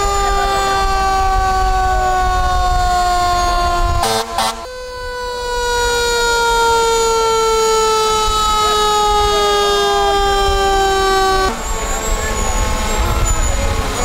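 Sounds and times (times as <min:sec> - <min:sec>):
fire truck horn blasts: 0:00.0 - 0:14.0
fire truck siren: 0:00.0 - 0:14.0.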